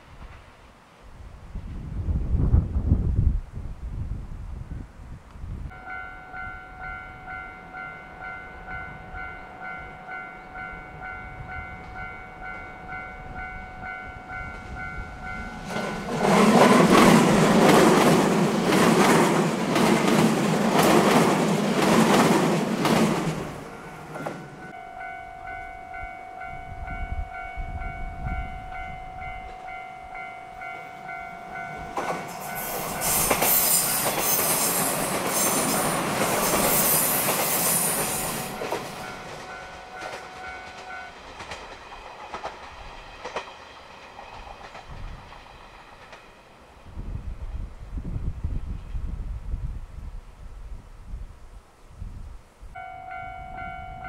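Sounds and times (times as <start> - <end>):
train approaching: 5.7 - 49.7, 52.7 - 54.0
electric train passing: 5.7 - 50.2, 52.8 - 54.0
level crossing bell ringing: 23.7 - 34.2, 52.8 - 54.0.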